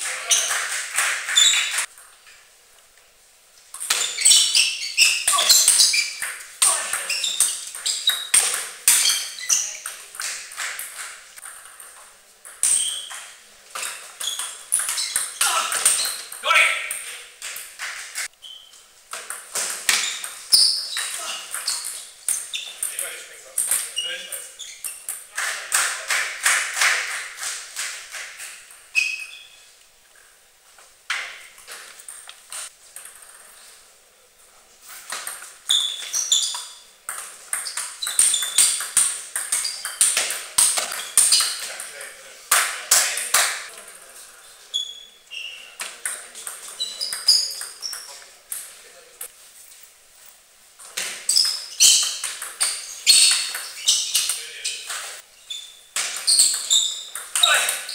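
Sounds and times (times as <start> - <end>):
table tennis ball pinging: 3.8 - 29.5, 35.1 - 41.9, 45.7 - 48.8, 50.8 - 57.9.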